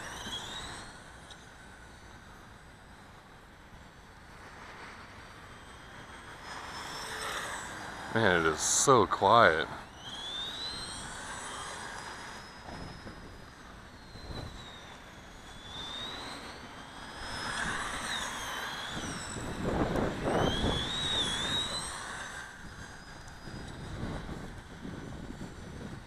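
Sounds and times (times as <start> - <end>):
electric motor whining: 0.0 - 26.0
wind on microphone: 12.6 - 14.8, 17.1 - 26.0.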